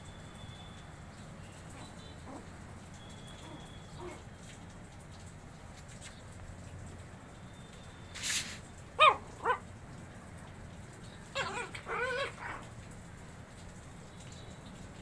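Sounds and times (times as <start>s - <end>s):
puppies yipping: 8.2s - 9.6s, 11.3s - 12.7s.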